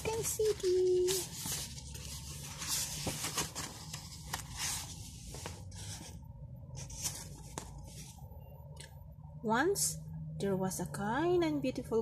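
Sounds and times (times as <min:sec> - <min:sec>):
paper pages rustling: 0:00.0 - 0:08.2.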